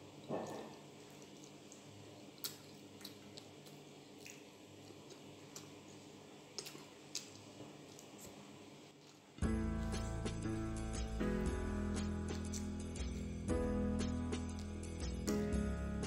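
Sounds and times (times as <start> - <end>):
low steady hum: 0.0 - 16.0
wet mouth chewing clicks: 0.4 - 8.4.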